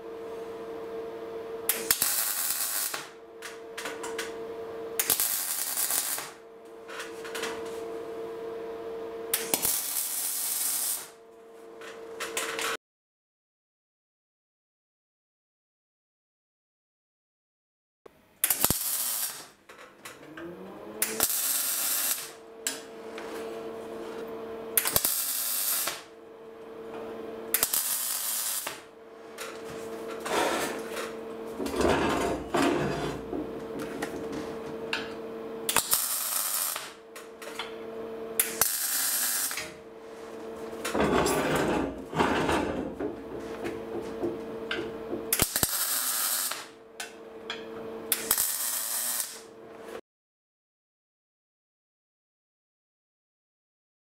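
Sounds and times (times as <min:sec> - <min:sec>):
welder hum: 0:00.0 - 0:12.8, 0:18.4 - 0:50.0
welding arc bursts: 0:01.7 - 0:03.1, 0:05.0 - 0:06.4, 0:09.4 - 0:11.1, 0:18.4 - 0:19.6, 0:21.0 - 0:22.4, 0:24.8 - 0:26.1, 0:27.5 - 0:28.9, 0:35.7 - 0:37.0, 0:38.4 - 0:39.8, 0:45.3 - 0:46.7, 0:48.1 - 0:49.5.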